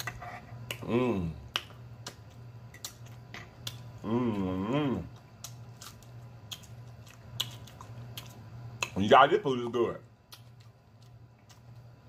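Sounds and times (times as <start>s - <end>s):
person humming mmm: 0.7s - 1.6s, 4.0s - 5.2s
wet chewing and lip-smacking: 5.1s - 9.0s, 10.2s - 12.0s.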